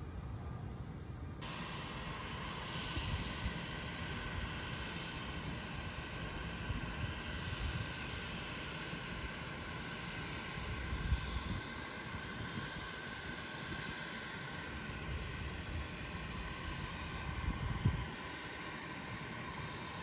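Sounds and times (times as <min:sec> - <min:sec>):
distant aircraft engine whine: 0:00.0 - 0:20.0
wind rumbling on microphone: 0:10.4 - 0:13.0, 0:15.0 - 0:18.4.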